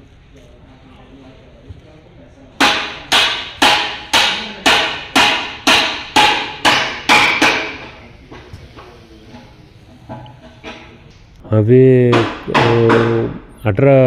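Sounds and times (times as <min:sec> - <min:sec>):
ringing hammer blows: 0:12.0 - 0:13.4.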